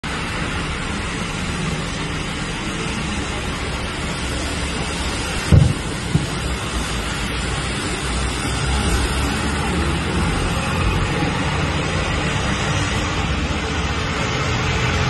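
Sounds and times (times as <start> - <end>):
sharp low thump: 5.4 - 6.7.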